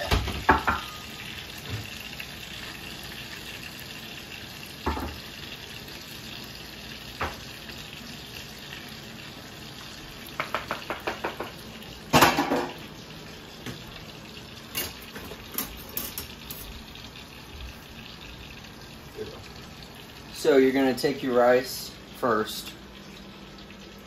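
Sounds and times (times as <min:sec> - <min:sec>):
kitchenware clattering: 0:00.0 - 0:01.0, 0:04.8 - 0:05.2, 0:10.3 - 0:12.8, 0:14.7 - 0:16.8
food sizzling in a pan: 0:00.0 - 0:24.0.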